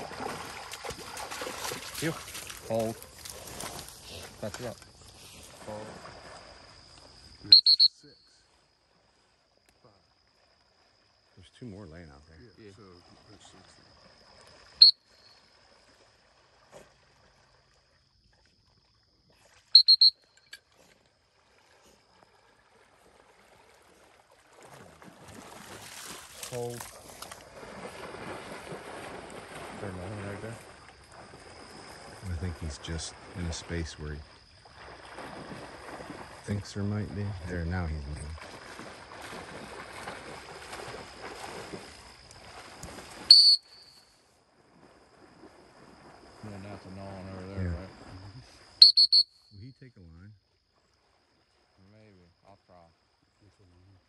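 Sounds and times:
splashing water: 0.0s - 8.3s, 12.9s - 49.4s
dog training whistle blasts: 7.5s - 8.3s, 19.8s - 20.6s, 43.3s - 44.1s, 48.8s - 49.6s.

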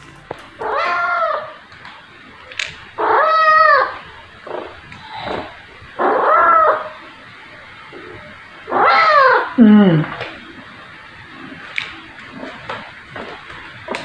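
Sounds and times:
cat meowing: 0.6s - 1.6s.

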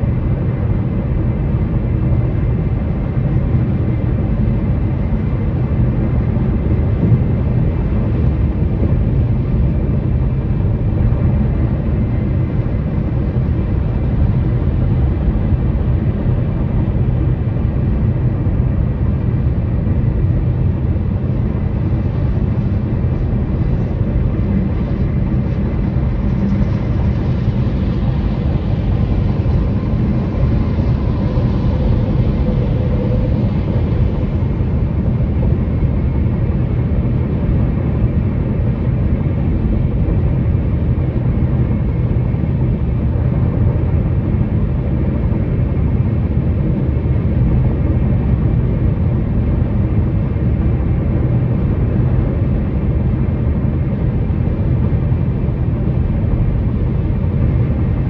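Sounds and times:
car tyre and road rumble: 0.0s - 58.0s.

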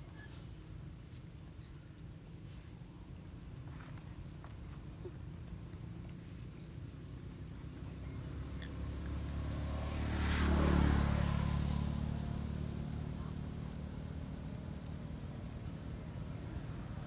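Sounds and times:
engine passing by: 6.2s - 17.0s.

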